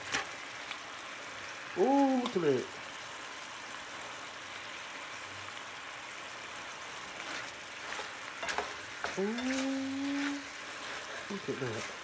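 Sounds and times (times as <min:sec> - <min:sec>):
chicken sizzling in frying pan: 0:00.0 - 0:12.0
spatula scraping pan: 0:07.0 - 0:12.0.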